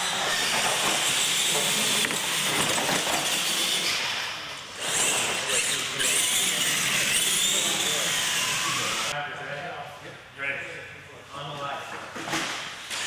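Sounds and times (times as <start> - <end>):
toy trucks motors whirring: 0.0 - 9.2.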